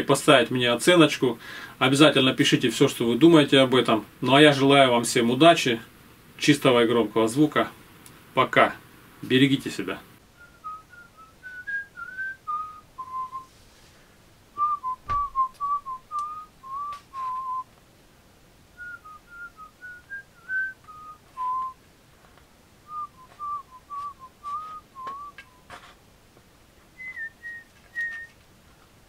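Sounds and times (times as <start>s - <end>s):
person whistling a tune: 10.4s - 13.5s, 14.6s - 17.6s, 18.8s - 21.8s, 22.9s - 25.7s, 27.0s - 28.4s
knock: 15.0s - 15.4s.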